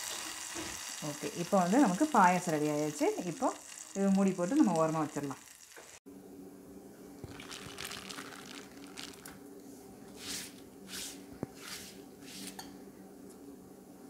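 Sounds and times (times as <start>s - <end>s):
hands rubbing wet leaf: 7.3s - 9.3s, 10.2s - 12.6s.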